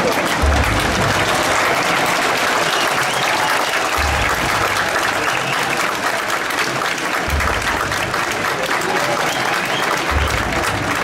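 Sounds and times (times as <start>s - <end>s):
crowd cheering and clapping: 0.0s - 11.0s.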